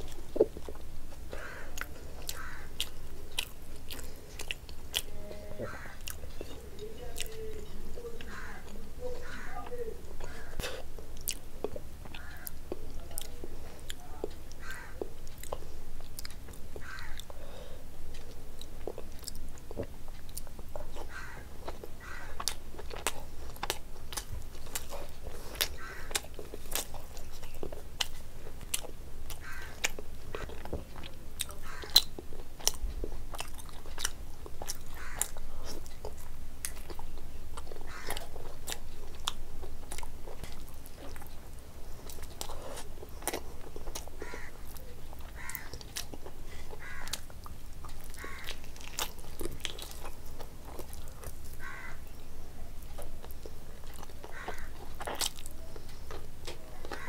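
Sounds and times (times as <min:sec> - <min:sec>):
biting and chewing food: 0:00.0 - 0:57.0.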